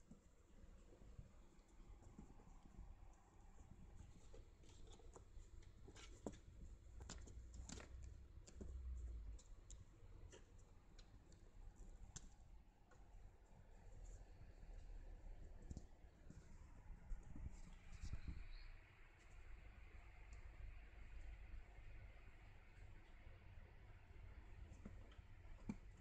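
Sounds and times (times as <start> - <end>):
handling clicks and rustles: 0.0 - 14.2.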